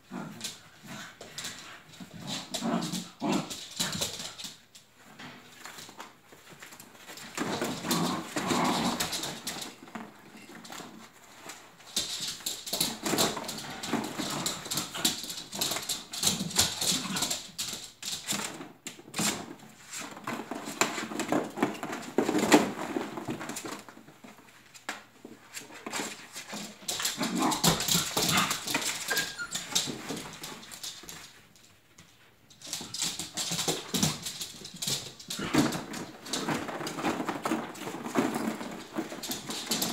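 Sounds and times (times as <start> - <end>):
puppy pads rustling: 0.1 - 39.9
plastic balls clattering: 11.9 - 18.6, 32.6 - 39.9
puppies whimpering and yipping: 29.0 - 29.8.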